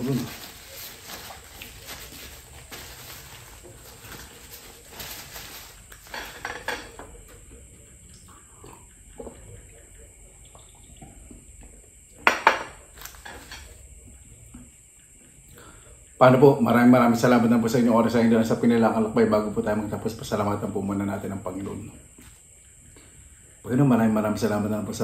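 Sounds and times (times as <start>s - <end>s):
paper napkin rustling: 0.0s - 6.4s
glass and plates clinking: 6.0s - 7.1s
dishes clattering: 6.0s - 7.2s, 12.2s - 13.7s.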